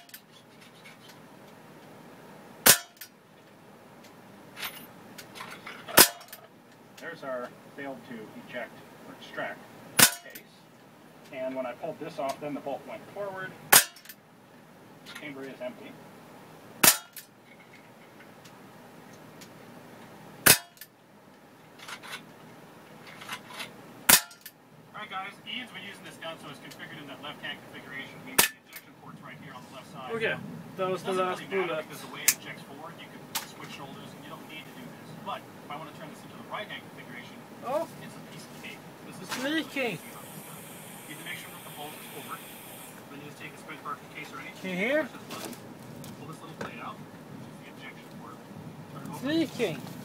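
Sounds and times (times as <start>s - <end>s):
air pistol shots: 2.6s - 3.0s, 10.0s - 10.4s, 16.8s - 17.2s, 20.4s - 20.8s.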